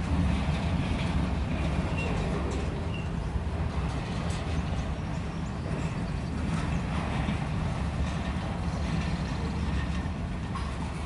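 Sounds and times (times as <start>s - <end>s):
freight train wheels rumbling: 0.0s - 11.0s.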